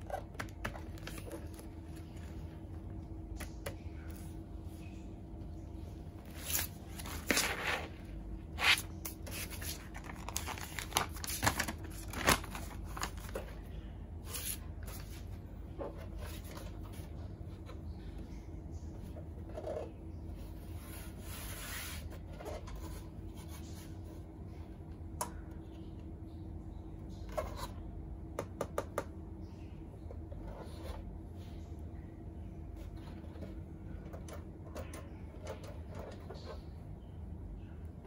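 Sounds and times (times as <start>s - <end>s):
steady low hum: 0.0s - 38.0s.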